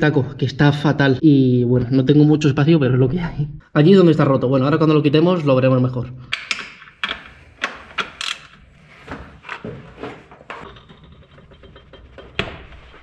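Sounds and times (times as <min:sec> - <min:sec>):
hand tools clicking and knocking: 0:06.3 - 0:08.7, 0:09.4 - 0:13.0.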